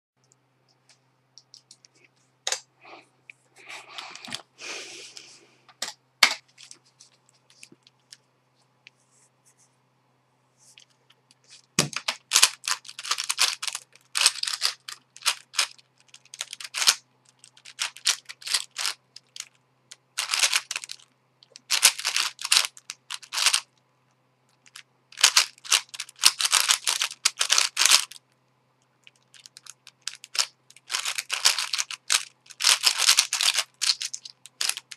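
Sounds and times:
puzzle cube plastic clacking: 0:10.8 - 0:23.8, 0:24.6 - 0:28.2, 0:29.0 - 0:34.9.

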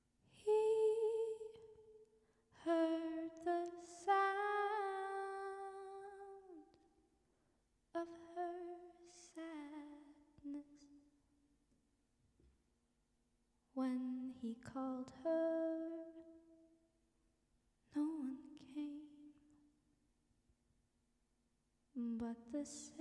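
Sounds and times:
woman singing wordless notes: 0:00.4 - 0:01.6, 0:02.6 - 0:06.7.

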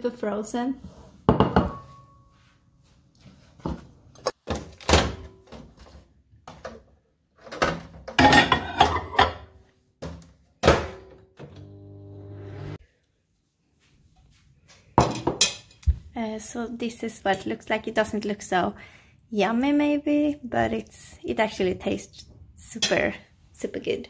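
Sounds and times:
microwave humming: 0:11.4 - 0:12.8.

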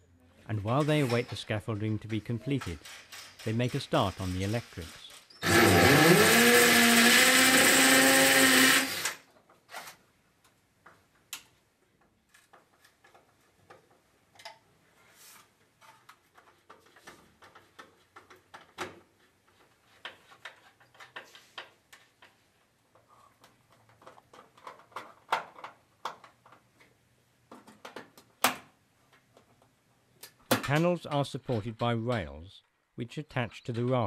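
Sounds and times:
power drill boring into wall: 0:02.7 - 0:09.9.

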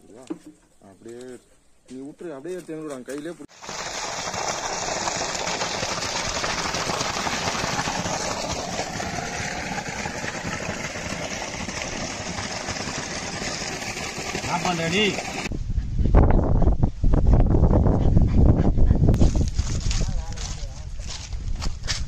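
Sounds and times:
pump motor running: 0:03.5 - 0:15.5
water gushing from pipe: 0:03.5 - 0:15.5.

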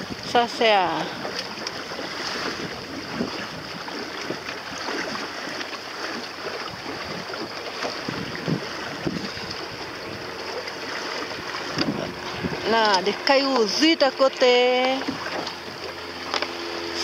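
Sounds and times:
wind on microphone: 0:00.0 - 0:13.4
water splashing against hull: 0:00.0 - 0:17.0.

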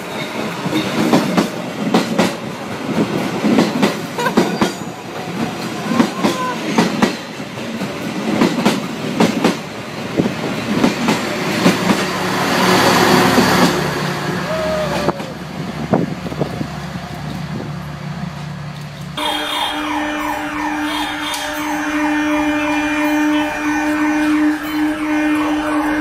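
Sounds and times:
train wheels clattering over rails: 0:00.0 - 0:14.1
train wheel squeal: 0:04.4 - 0:07.3.

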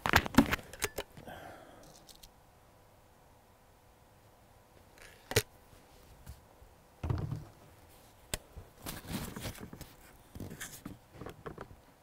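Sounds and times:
dull thump: 0:07.0 - 0:07.6
small knocks: 0:07.0 - 0:07.6.

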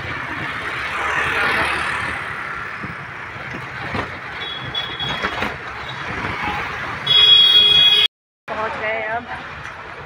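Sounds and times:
road and wind noise: 0:00.0 - 0:10.0
cab knocks and rattles: 0:03.5 - 0:06.3.

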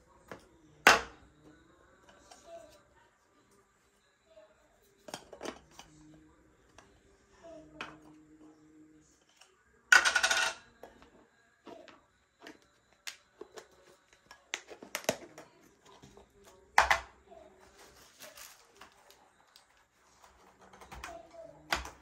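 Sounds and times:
glass jars clinking and knocking: 0:09.9 - 0:15.4, 0:16.0 - 0:17.2.

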